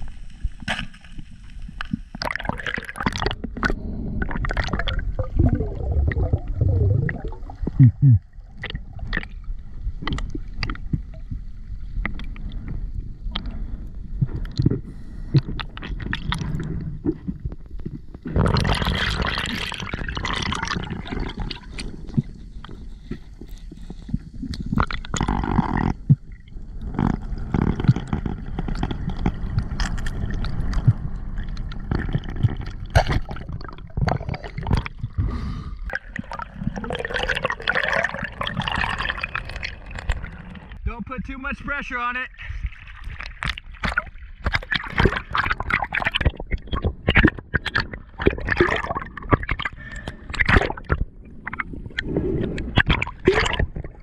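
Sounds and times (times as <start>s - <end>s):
bubbling: 0.0s - 41.0s, 42.3s - 54.0s
underwater gurgling and sloshing: 0.0s - 54.0s
underwater clicks and knocks: 10.0s - 11.4s, 20.2s - 35.2s, 43.0s - 54.0s.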